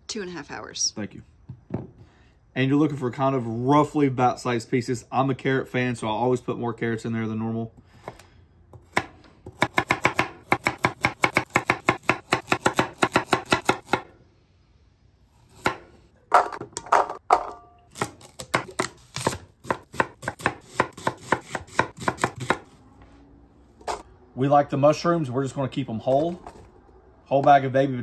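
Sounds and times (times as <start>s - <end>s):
knife chopping on wooden board: 8.8s - 14.1s, 15.6s - 16.6s, 18.0s - 22.7s
knife cutting through onion: 18.0s - 22.8s.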